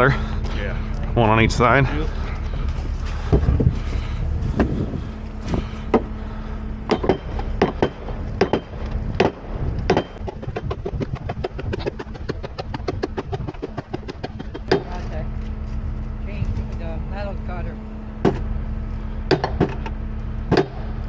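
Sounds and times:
idling engine hum: 0.0 - 21.0
metal knocks and strikes: 6.9 - 15.1, 18.2 - 18.5, 19.3 - 21.0.

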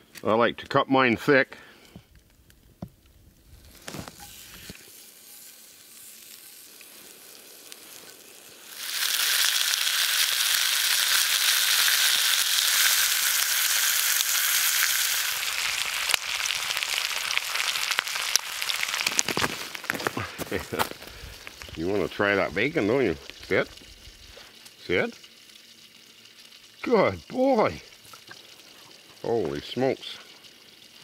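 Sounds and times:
crackling pops: 1.9 - 5.0, 6.0 - 24.8
bacon sizzling in a skillet: 3.0 - 31.0.

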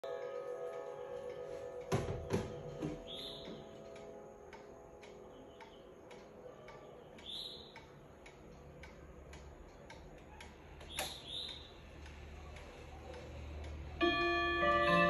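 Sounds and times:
clock ticking faintly: 0.0 - 15.0
sharp clock click: 3.1 - 15.0.

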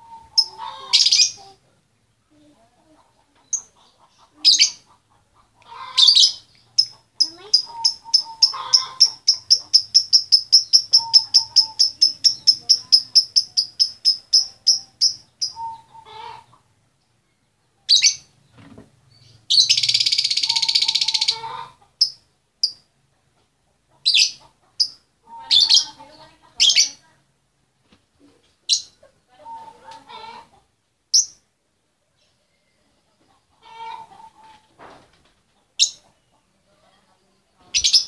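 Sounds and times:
lovebird chirping: 0.0 - 1.6, 3.4 - 5.0, 5.8 - 16.6, 17.2 - 22.9, 24.0 - 27.0, 28.6 - 29.1, 31.1 - 31.5, 35.8 - 36.4, 37.3 - 38.0.

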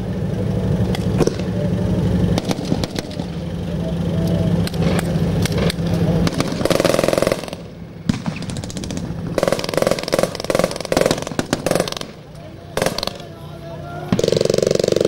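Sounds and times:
diesel engine running: 0.0 - 15.0
machine-gun fire bursts: 2.4 - 3.3, 6.2 - 12.2, 12.8 - 13.3, 14.1 - 15.0.

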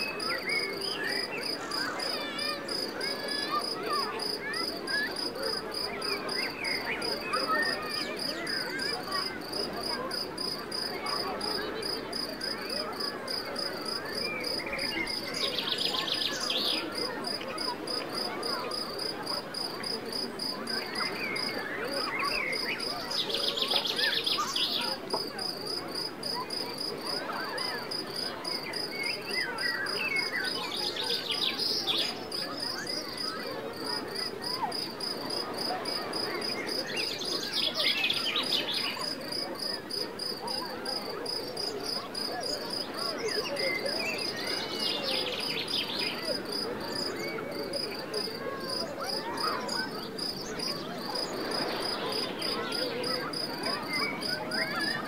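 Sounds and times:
crickets chirping: 43.6 - 48.7, 49.6 - 55.0.

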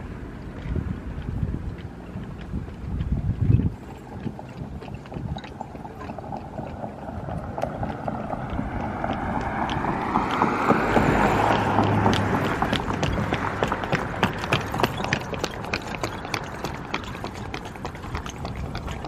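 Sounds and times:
footsteps on paving: 0.5 - 19.0
car passing by: 6.0 - 19.0.

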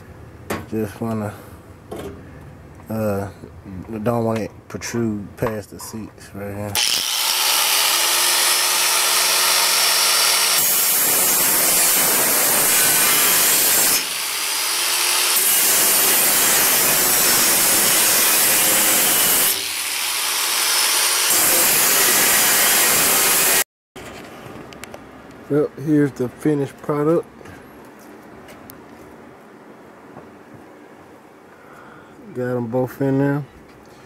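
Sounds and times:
angle grinder whining: 6.8 - 23.6
grinder grinding steel: 6.8 - 23.6.

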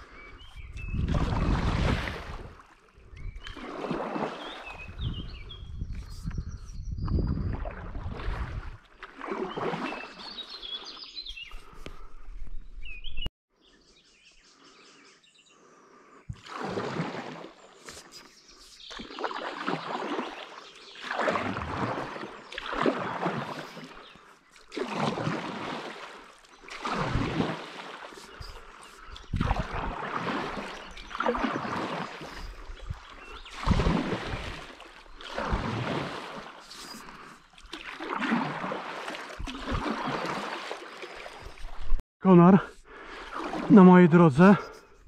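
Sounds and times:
birds singing: 0.0 - 1.3, 2.9 - 7.7, 9.4 - 16.4, 17.4 - 24.8, 27.8 - 35.5, 36.2 - 37.6, 39.2 - 42.9
paddle strokes splashing water: 1.0 - 5.4, 7.3 - 12.5, 16.3 - 42.0, 42.7 - 44.9.

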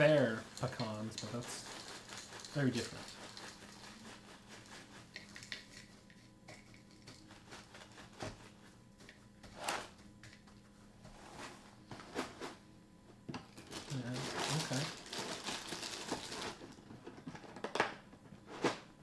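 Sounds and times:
plastic bag rustling: 0.0 - 5.5, 13.5 - 16.8.

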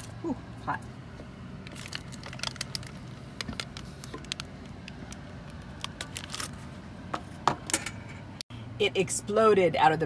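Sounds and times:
aluminium foil crinkling: 1.6 - 6.7.

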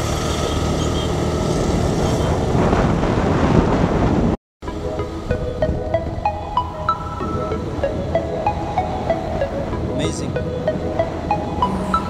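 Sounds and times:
scooter engine running: 0.0 - 2.5
wind noise on microphone: 0.1 - 4.4, 5.0 - 10.4
music with ringing notes: 4.6 - 12.0.

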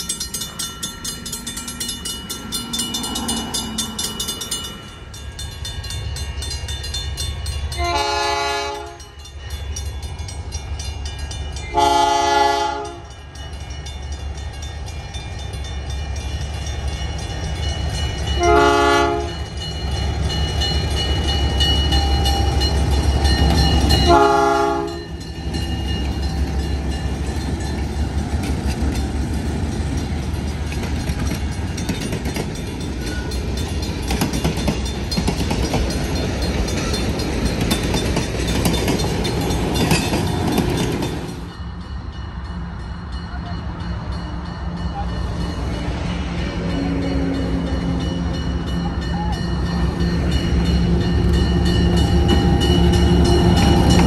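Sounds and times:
locomotive engine rumbling: 0.0 - 54.0
locomotive air horn: 7.7 - 9.2, 11.7 - 13.1, 18.4 - 19.4, 24.0 - 25.1.

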